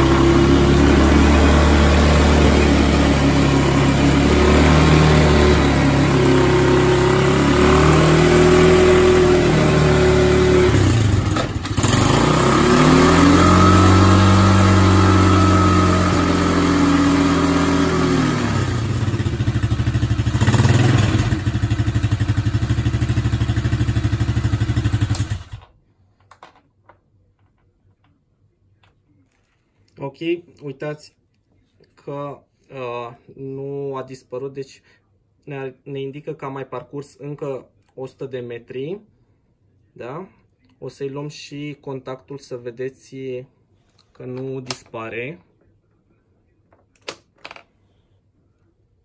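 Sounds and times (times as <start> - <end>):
atv engine revving: 0.0 - 25.6.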